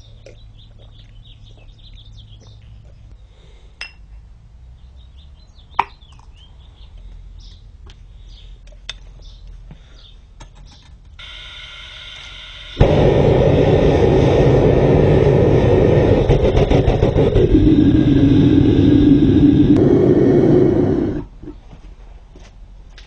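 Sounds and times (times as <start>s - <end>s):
small birds chirping: 0.0s - 3.7s, 4.6s - 11.1s.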